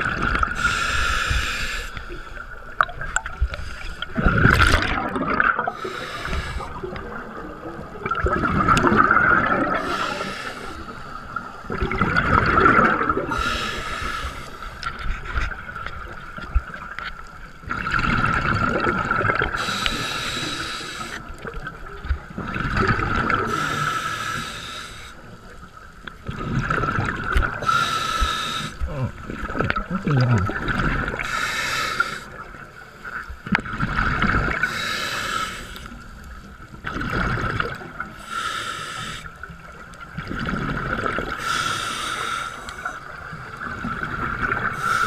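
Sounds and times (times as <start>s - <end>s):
exhaled bubbles gurgling: 0.0s - 45.0s
regulator inhale hiss: 0.5s - 2.5s, 3.5s - 4.2s, 5.7s - 7.1s, 9.8s - 11.6s, 13.3s - 14.9s, 19.6s - 21.4s, 23.4s - 25.4s, 27.6s - 28.9s, 31.2s - 32.4s, 34.6s - 36.1s, 38.2s - 39.6s, 41.4s - 43.1s, 44.7s - 45.0s.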